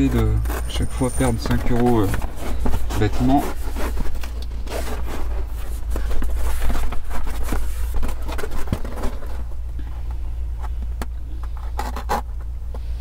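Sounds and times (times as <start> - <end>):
foam mat rustling and scraping: 0.0 - 9.6
steady low hum: 0.0 - 13.0.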